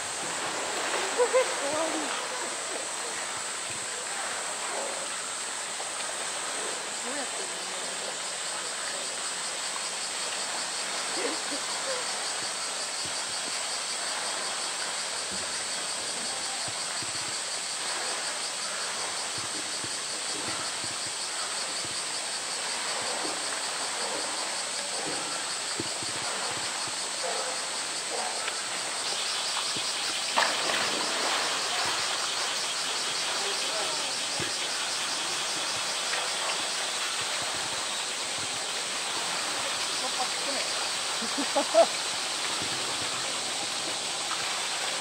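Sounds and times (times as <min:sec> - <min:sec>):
insects droning: 0:00.0 - 0:45.0
animal splashing into pool: 0:29.6 - 0:37.8.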